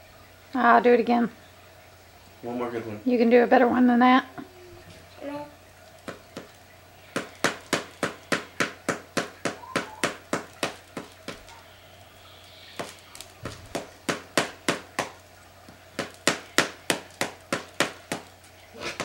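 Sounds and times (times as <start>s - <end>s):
paddle striking rubber ball: 7.1s - 11.5s, 12.8s - 18.3s.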